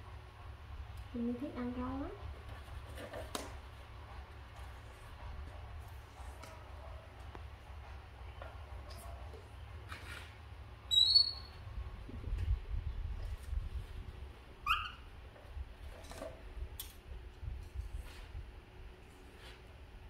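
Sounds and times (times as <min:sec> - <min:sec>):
monkey squeaking: 0:10.9 - 0:11.6, 0:14.6 - 0:15.1.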